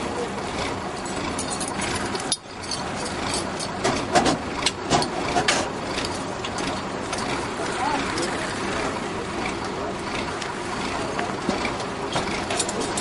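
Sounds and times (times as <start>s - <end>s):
fire truck engine running: 0.0s - 13.0s
equipment knocking and clanking: 1.0s - 7.4s, 11.1s - 13.0s.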